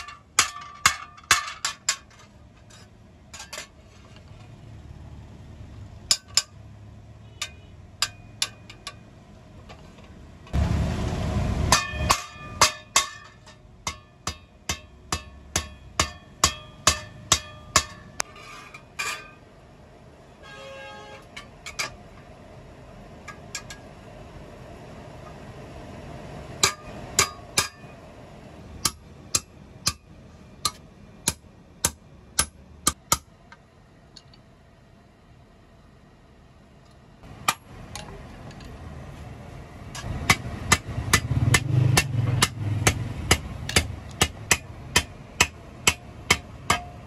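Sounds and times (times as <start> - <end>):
hammer striking metal on anvil: 0.0 - 2.2, 6.1 - 6.6, 7.4 - 9.0, 11.7 - 18.3, 26.6 - 28.0, 28.8 - 33.3, 40.0 - 47.0.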